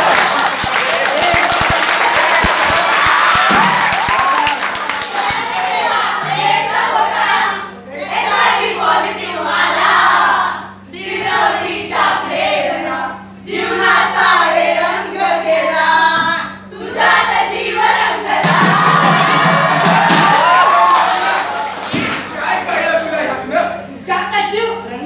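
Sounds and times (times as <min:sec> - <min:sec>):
group singing in unison: 0:02.1 - 0:20.5.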